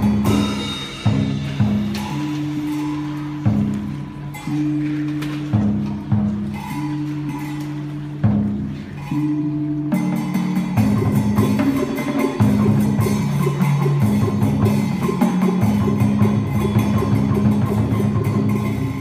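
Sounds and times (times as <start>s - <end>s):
quick percussion beat: 0.0s - 19.0s.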